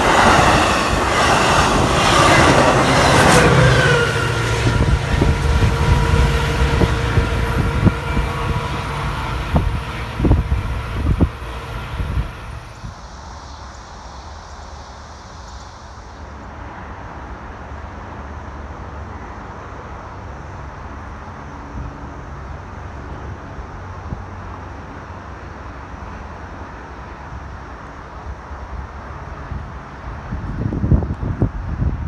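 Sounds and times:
wind on microphone: 0.0s - 13.1s, 29.4s - 32.0s
thin high hiss: 10.7s - 16.7s.

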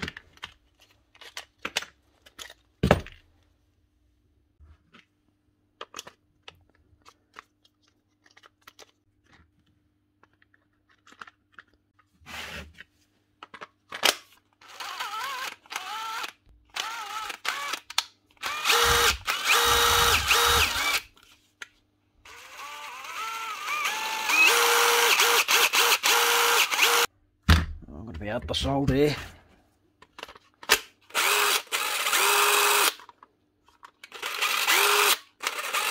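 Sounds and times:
impact driver motor running: 14.6s - 17.8s, 18.4s - 21.0s, 22.3s - 27.1s, 31.2s - 32.9s, 34.2s - 35.9s
plastic and metal parts clicking: 30.0s - 35.9s.

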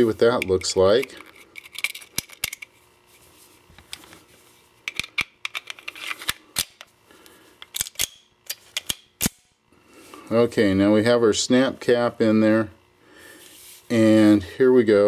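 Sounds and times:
metallic clicks and snaps: 7.6s - 9.5s.

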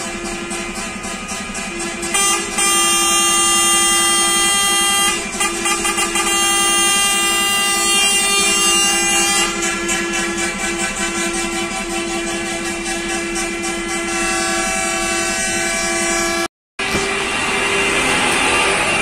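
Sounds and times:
coach air horns blasting: 0.0s - 19.0s.

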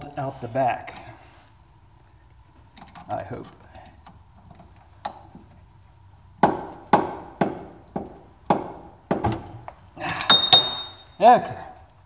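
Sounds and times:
brief metallic ring: 10.2s - 11.2s
metal-on-metal hammer knocks: 10.3s - 11.1s.

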